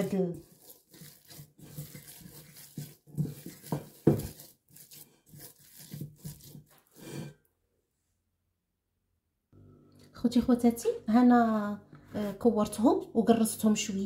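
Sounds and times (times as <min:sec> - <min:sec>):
hands kneading dough: 0:00.0 - 0:07.2.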